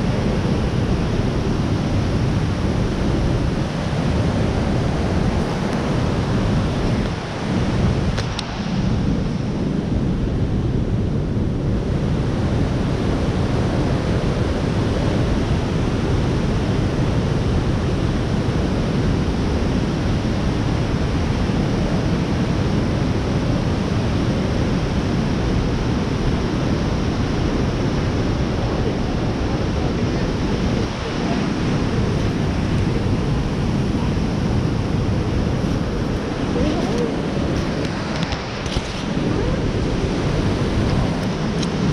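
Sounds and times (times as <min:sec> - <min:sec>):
whitewater rushing: 0:00.0 - 0:41.9.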